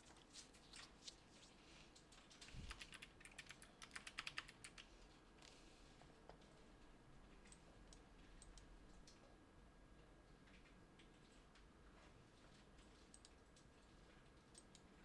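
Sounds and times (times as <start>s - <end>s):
keyboard keys clicking: 2.4s - 4.9s.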